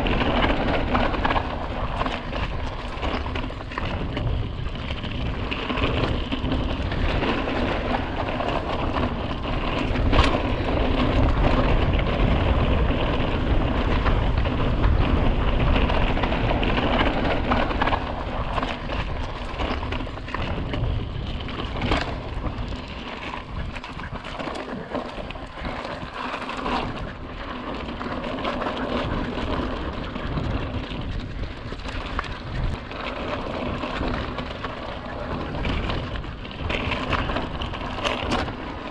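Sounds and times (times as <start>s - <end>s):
wind and tyre noise: 0.0s - 38.9s.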